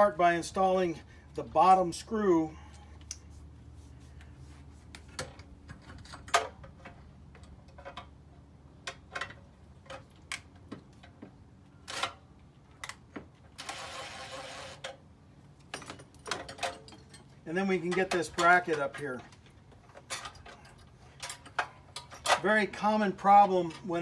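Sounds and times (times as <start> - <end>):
cordless driver running: 13.6 - 14.8.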